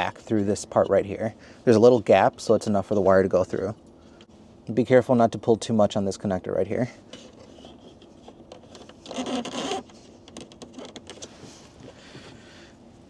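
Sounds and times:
plastic trim rubbing and scraping: 7.2 - 11.4.

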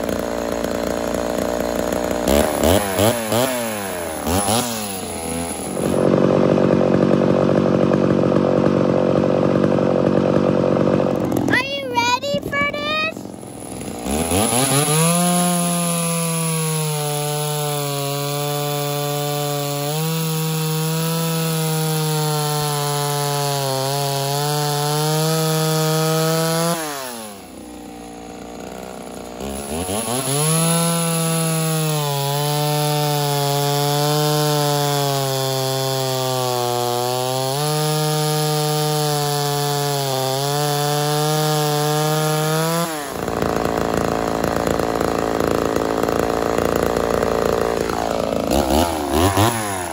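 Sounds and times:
chainsaw cutting log: 0.0 - 49.9.

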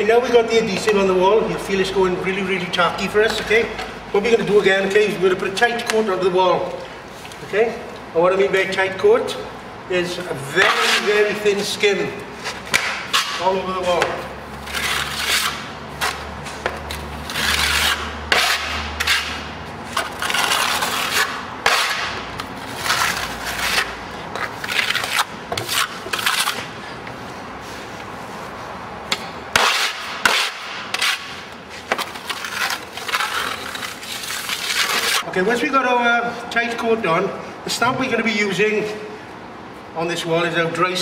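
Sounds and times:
trowel scraping and spreading plaster: 10.5 - 26.7, 29.6 - 35.3.

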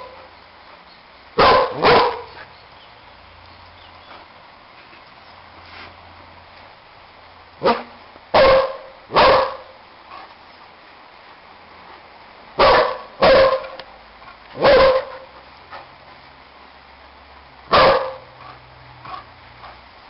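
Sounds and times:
dog barking: 1.4 - 2.4, 7.6 - 9.7, 12.6 - 13.8, 14.6 - 15.3, 17.7 - 19.3.

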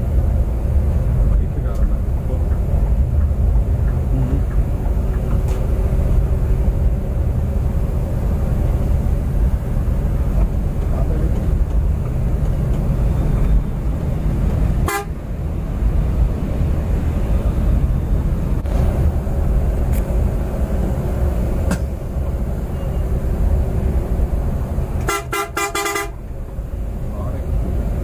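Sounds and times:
coach driving rumble: 0.0 - 28.0
vehicle horn toots: 14.8 - 15.2, 25.0 - 26.2.

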